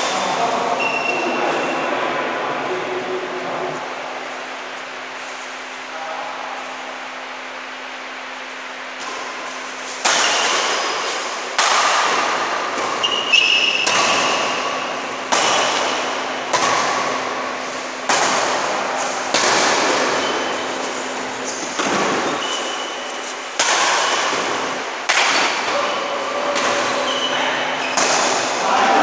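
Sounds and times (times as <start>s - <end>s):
rackets hitting shuttlecock: 8.9s - 25.9s, 26.5s - 28.6s.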